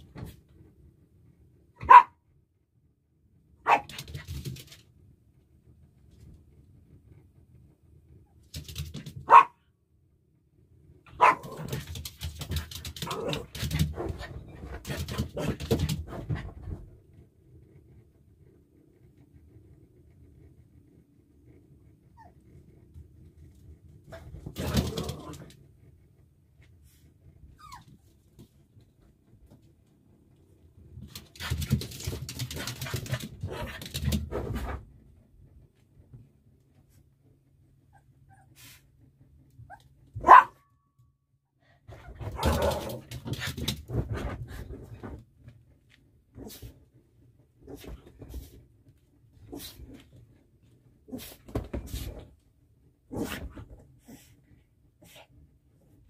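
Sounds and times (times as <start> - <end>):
small dogs scrabbling: 3.7 - 4.9, 8.4 - 9.5, 11.2 - 16.8, 24.1 - 25.6, 31.0 - 34.9, 41.9 - 45.2
small dogs barking and yipping: 9.2 - 9.6, 11.1 - 13.8, 39.7 - 40.6.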